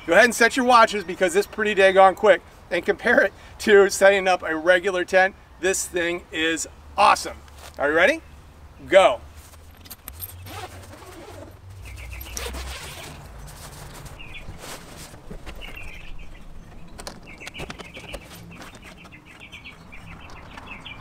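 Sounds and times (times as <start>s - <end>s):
canvas rustling: 9.4s - 16.2s
bird chirping: 10.2s - 13.2s, 14.1s - 14.6s, 15.4s - 21.0s.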